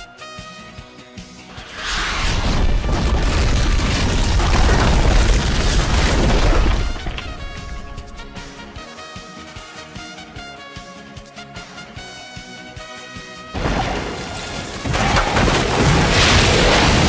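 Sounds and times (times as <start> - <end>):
background music: 0.0 - 4.2, 6.4 - 17.0
deep rumbling explosion: 1.5 - 8.7.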